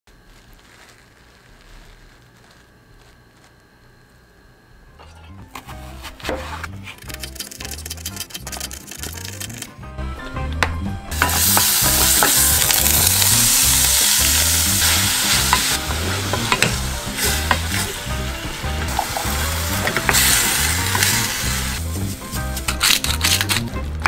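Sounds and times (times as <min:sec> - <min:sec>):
meat sizzling in oil in a pan: 0:11.1 - 0:22.2.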